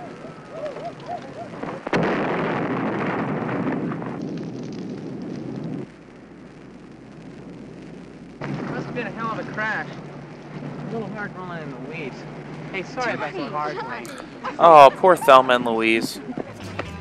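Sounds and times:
fire rumbling: 0:00.0 - 0:17.0
car explosion blast: 0:01.5 - 0:13.3.

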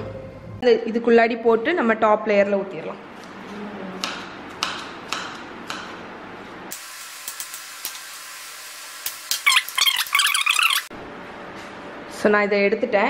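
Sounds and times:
knife chopping on plastic board: 0:04.0 - 0:06.0
steady hiss with clicks: 0:06.7 - 0:08.2, 0:08.9 - 0:09.8.

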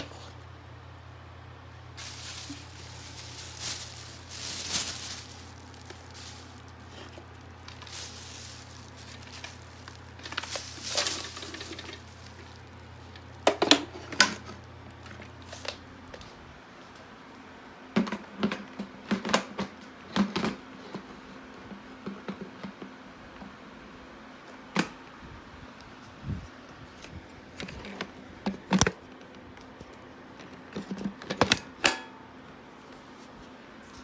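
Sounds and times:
low steady hum: 0:00.0 - 0:17.9.

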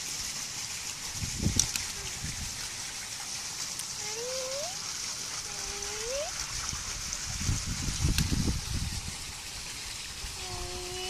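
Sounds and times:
running water from spout: 0:00.0 - 0:11.0.

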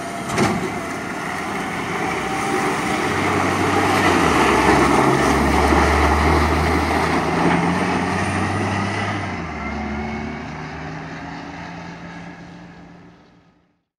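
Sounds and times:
tyres on gravel: 0:00.0 - 0:08.7
dump truck diesel engine: 0:00.0 - 0:13.7.

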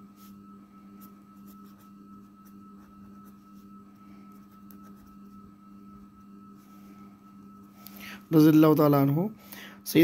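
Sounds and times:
steady low hum: 0:00.0 - 0:10.0
pen scratching on paper: 0:01.4 - 0:02.2.

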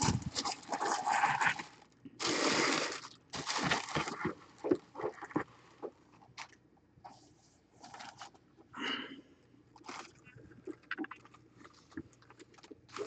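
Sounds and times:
tissue paper rustling: 0:00.0 - 0:04.4, 0:07.0 - 0:08.4.

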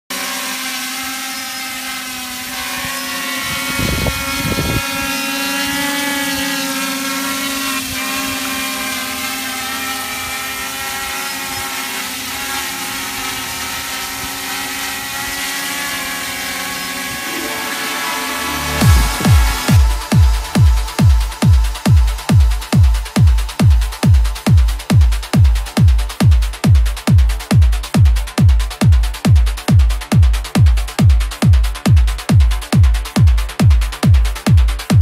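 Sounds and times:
quadcopter buzzing whine: 0:00.1 - 0:35.0
low thumps: 0:16.5 - 0:24.2.

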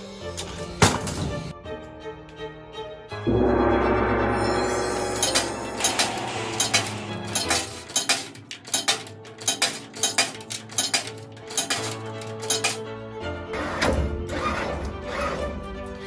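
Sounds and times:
coins clinking into coin slot: 0:06.6 - 0:12.8.

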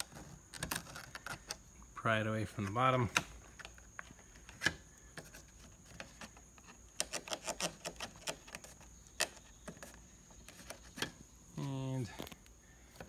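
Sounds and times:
plastic trim clicks and creaks: 0:00.0 - 0:01.6, 0:02.5 - 0:11.2.

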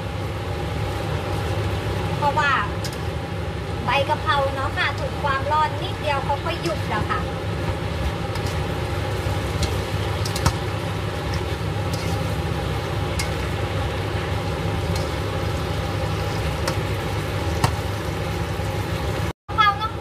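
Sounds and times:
steady low hum: 0:00.0 - 0:19.3
tongs tossing food in pan: 0:07.5 - 0:18.6
tongs clicking against pan: 0:09.6 - 0:10.6, 0:13.2 - 0:13.4.

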